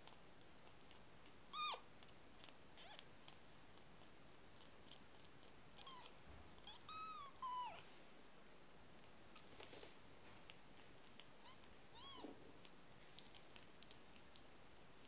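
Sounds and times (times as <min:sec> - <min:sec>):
kitten mewing: 0:05.8 - 0:07.8, 0:11.4 - 0:12.4.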